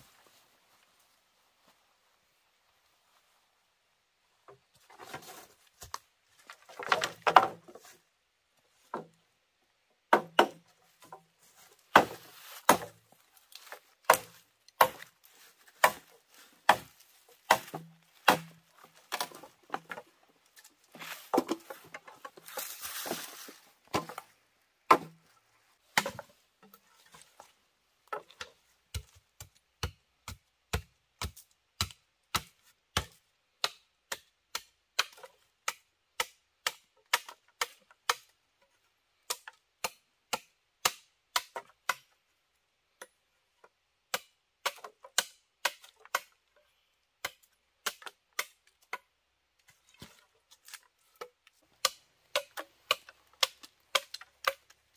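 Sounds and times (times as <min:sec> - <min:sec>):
rustling: 0:10.9 - 0:24.4
blade chopping into wood: 0:11.9 - 0:13.0, 0:13.7 - 0:15.1, 0:15.7 - 0:20.0.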